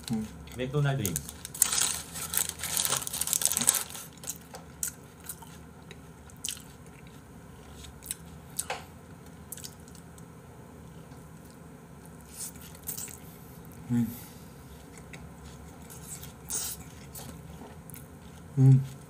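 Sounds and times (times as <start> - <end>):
paper wrapper crinkling: 1.0 - 4.4
person chewing: 1.2 - 13.9, 14.6 - 19.0.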